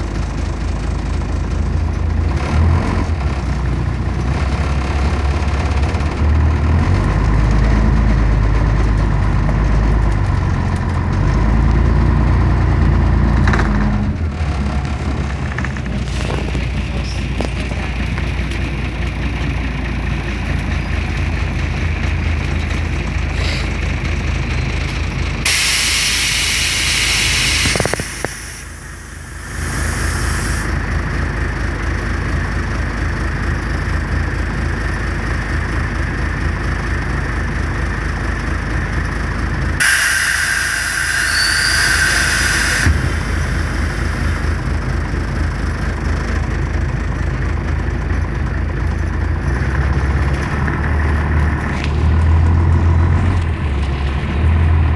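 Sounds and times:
bus engine idling: 0.0s - 54.9s
pneumatic door air hiss: 23.4s - 23.7s, 25.5s - 30.7s, 39.8s - 44.6s
whistling tone: 39.9s - 43.9s.

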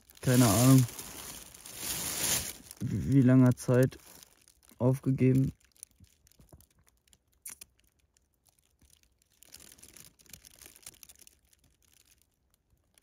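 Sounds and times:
faint rustling: 0.2s - 4.4s.

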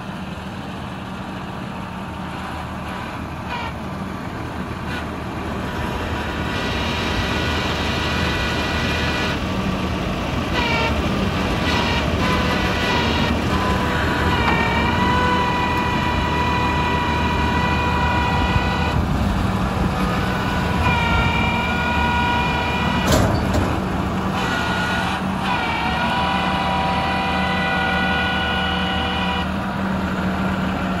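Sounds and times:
diesel truck engine running: 0.0s - 31.0s
hydraulic hoist whine: 4.7s - 29.6s
metal clank: 23.0s - 23.9s.

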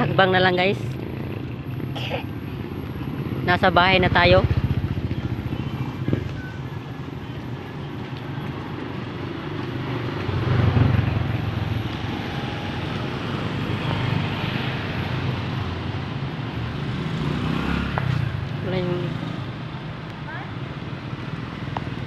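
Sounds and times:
motorcycle passing close: 0.0s - 7.2s, 8.2s - 22.0s
motorcycle traffic: 0.0s - 22.0s.

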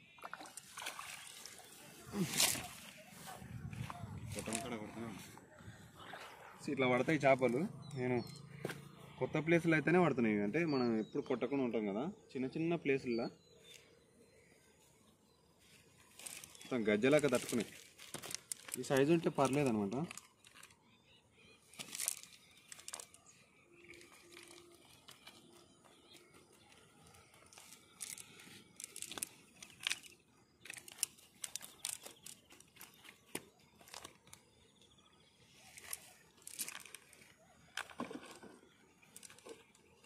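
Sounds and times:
net rustling: 16.1s - 20.7s
light clicks of sinkers: 16.2s - 20.8s, 21.7s - 34.5s, 35.6s - 39.9s.

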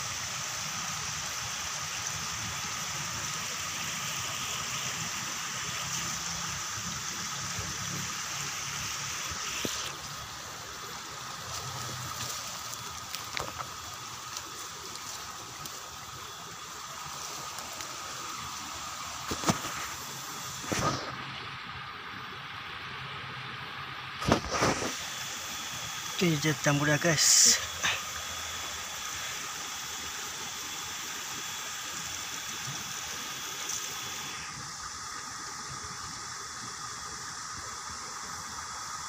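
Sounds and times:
running water: 0.0s - 39.0s
undergrowth rustling: 9.3s - 21.2s.

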